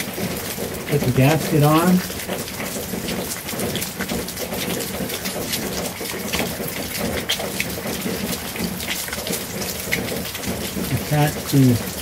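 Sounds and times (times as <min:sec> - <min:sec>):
raindrops striking close by: 0:00.0 - 0:12.0
steady rain falling: 0:00.0 - 0:12.0.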